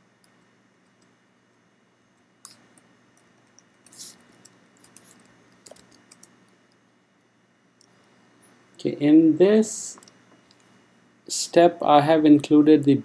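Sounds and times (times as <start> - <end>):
faint keyboard typing: 2.4 - 6.8.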